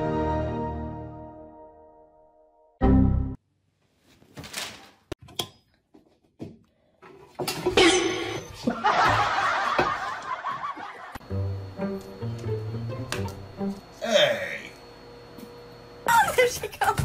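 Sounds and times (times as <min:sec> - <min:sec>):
loud laughter: 0:08.6 - 0:11.2.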